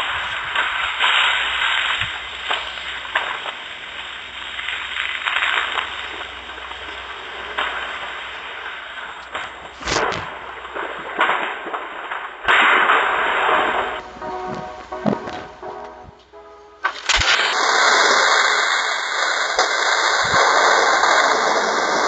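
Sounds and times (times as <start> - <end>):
steady hiss: 0.0 - 22.0
sharp bangs: 7.0 - 18.5.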